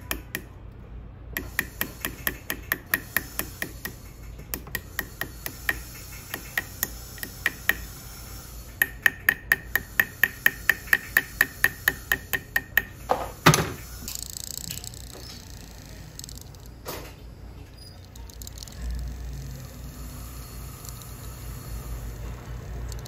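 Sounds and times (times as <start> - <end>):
metal tool tapping metal: 1.4 - 8.0, 8.8 - 13.6.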